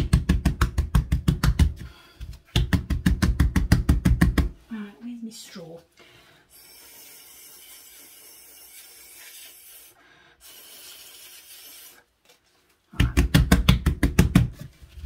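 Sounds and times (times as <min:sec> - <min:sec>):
breath blown through a straw: 0:09.2 - 0:12.1.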